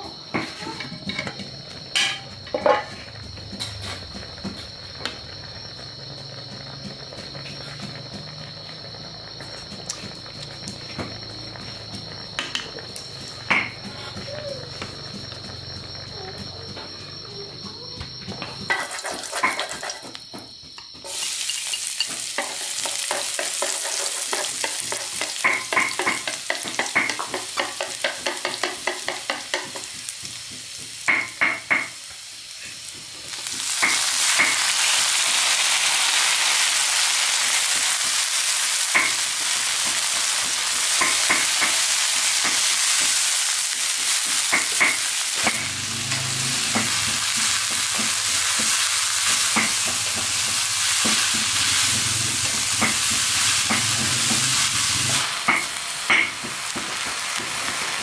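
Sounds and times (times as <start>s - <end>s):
food sizzling in hot oil: 0.0s - 58.0s
cooking utensil clicking and scraping: 21.0s - 30.4s.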